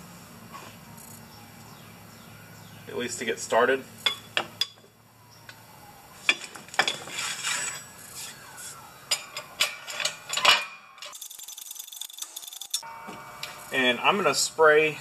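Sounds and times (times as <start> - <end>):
metal spacers scraping: 6.2 - 14.9
steel spacers clinking: 6.3 - 8.3, 9.1 - 14.9.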